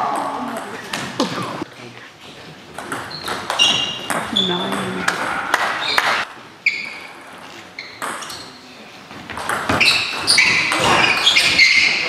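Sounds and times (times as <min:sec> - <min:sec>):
shoes squeaking on floor: 0:03.0 - 0:04.9, 0:05.8 - 0:12.0.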